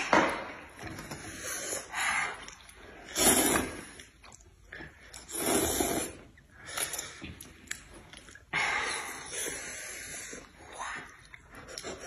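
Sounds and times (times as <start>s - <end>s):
person slurping noodles: 1.2s - 4.4s, 5.2s - 7.2s.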